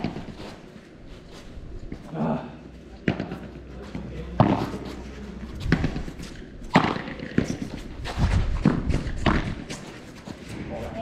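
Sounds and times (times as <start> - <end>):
rackets striking ball: 3.0 - 4.9, 5.6 - 10.0.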